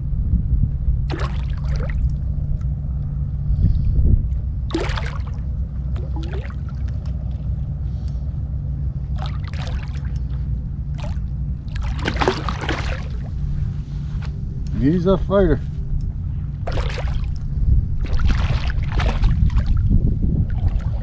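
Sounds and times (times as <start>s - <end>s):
steady low rumble: 0.0s - 21.0s
water splashing around kayak: 1.1s - 2.8s, 4.6s - 8.0s, 9.0s - 14.2s, 16.6s - 21.0s.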